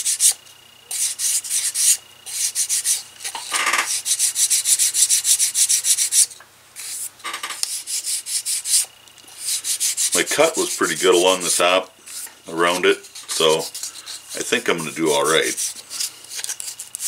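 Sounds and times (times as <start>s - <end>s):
sandpaper scratching on leather: 7.7s - 17.0s.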